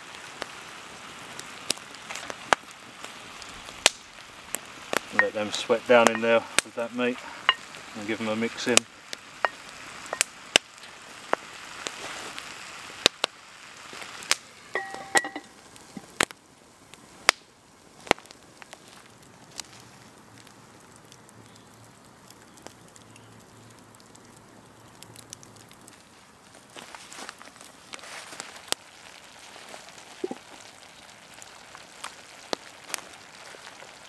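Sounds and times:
meat and onions sizzling: 0.0 - 23.6, 25.8 - 34.0
fire crackling: 0.0 - 34.0
ceramic lid clink: 14.8 - 15.5.

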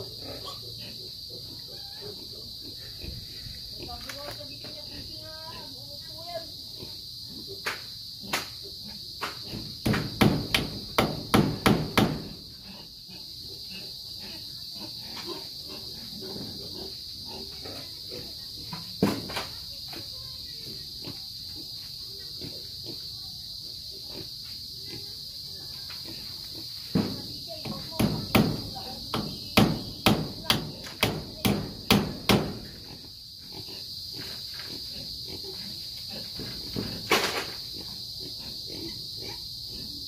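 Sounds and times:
high insect buzz: 0.0 - 40.0
hammer knocking on wood: 9.8 - 12.3, 27.0 - 32.6.

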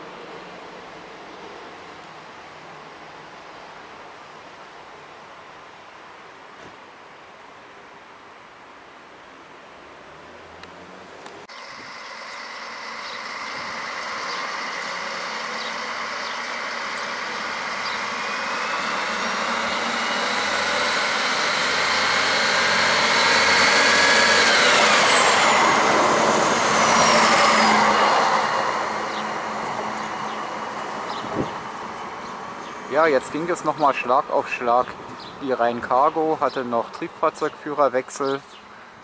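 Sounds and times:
diesel railcar passing: 0.0 - 5.5, 9.8 - 38.7
wheel-on-rail noise: 10.5 - 37.0.

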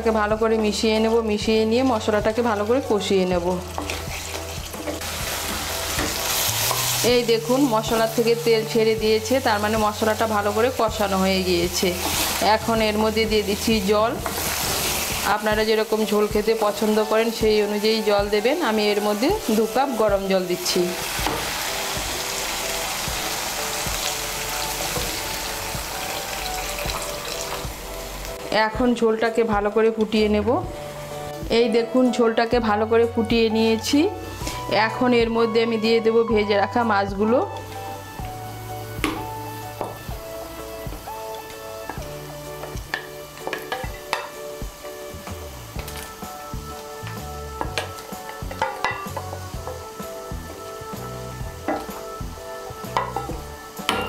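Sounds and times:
background music: 0.0 - 54.0
paste sizzling in oil: 1.4 - 28.5, 37.1 - 54.0
water pouring and splashing: 2.4 - 7.0, 21.1 - 27.8.

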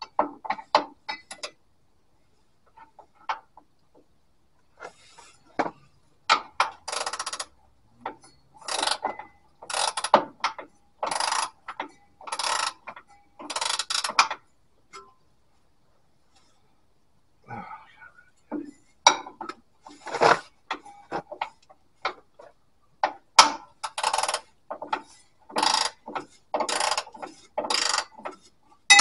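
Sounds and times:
ratchet spanner clicking: 8.6 - 9.1, 9.7 - 10.2, 12.3 - 12.8, 25.6 - 26.0, 26.7 - 28.1.

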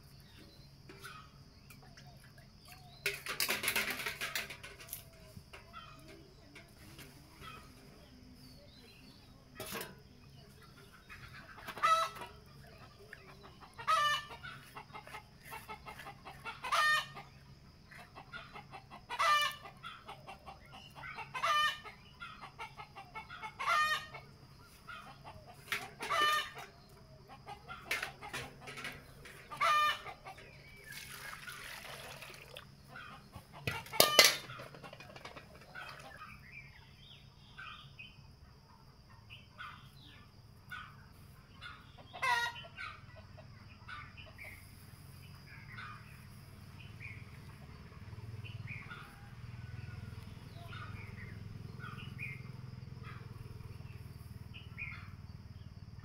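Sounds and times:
chicken calling: 11.1 - 17.4, 18.0 - 36.3, 41.6 - 43.2.

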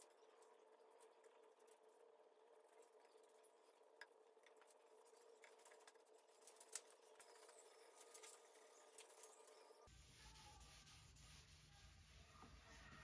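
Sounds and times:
rag wiping wood: 9.9 - 13.0.

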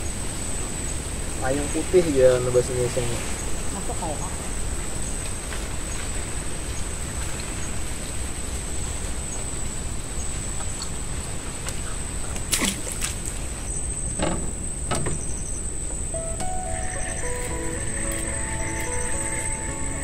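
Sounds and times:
steady noisy hiss: 0.0 - 20.0
high thin whine: 16.2 - 20.0.

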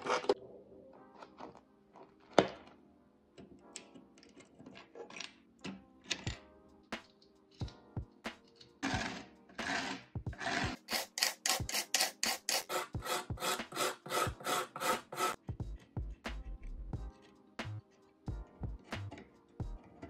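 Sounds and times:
wire brush scrubbing: 10.4 - 15.4.

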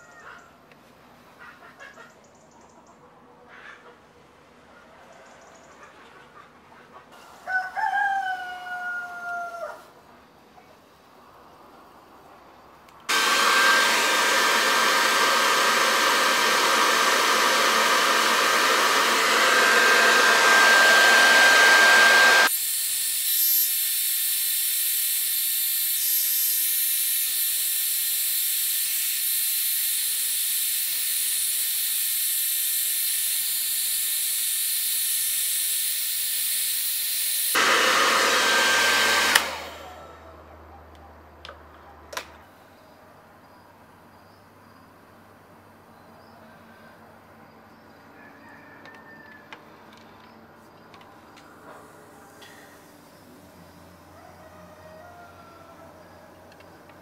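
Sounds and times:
hair dryer blowing: 13.1 - 40.2.

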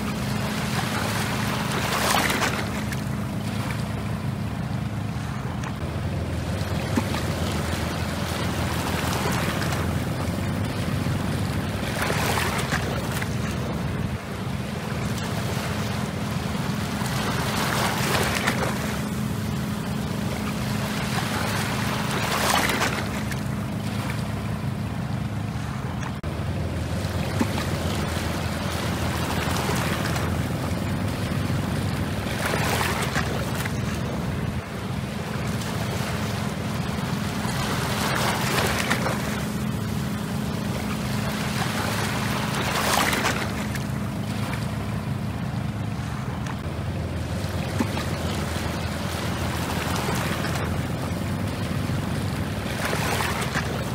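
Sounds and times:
boat engine drone: 0.0 - 53.9
waves washing over rocks: 0.0 - 53.9.

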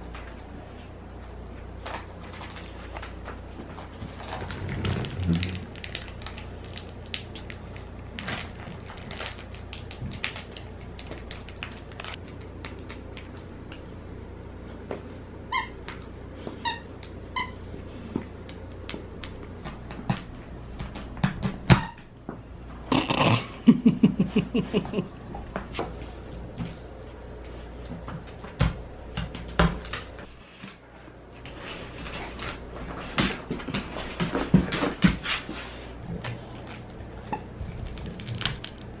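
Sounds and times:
dog gnawing toy: 33.2 - 39.0.

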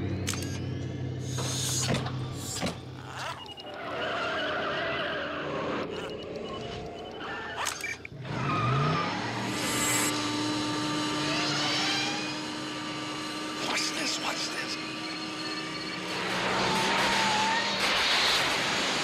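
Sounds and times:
tyres skidding: 1.3 - 6.7, 8.1 - 19.0
car engine running: 8.1 - 19.0.

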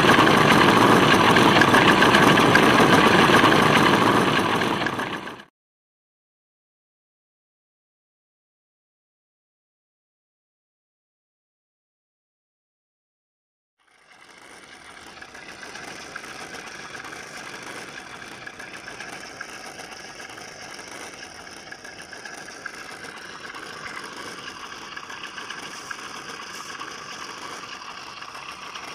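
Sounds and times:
simulated engine idle from small speaker: 0.0 - 5.5, 13.8 - 28.9.

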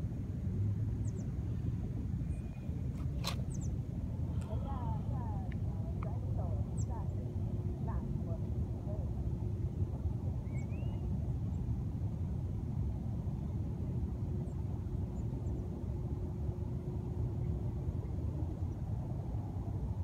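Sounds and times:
faint steady hum: 0.0 - 20.0
low outdoor rumble: 0.0 - 20.0.

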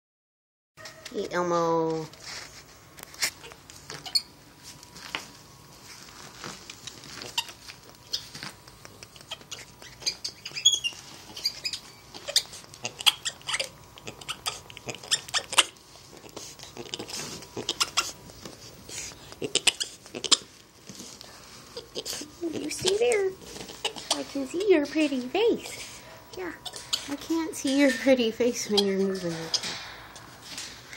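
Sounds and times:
rustling and clicking in cage: 1.8 - 14.0, 22.6 - 30.9
monkey high chirp: 9.2 - 15.7.

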